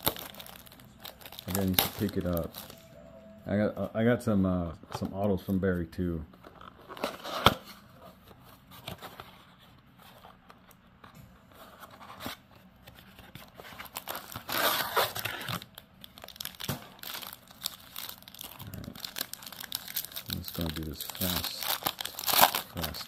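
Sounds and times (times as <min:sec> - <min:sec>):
foil wrapper tearing and crinkling: 0:00.0 - 0:02.8, 0:13.8 - 0:23.0.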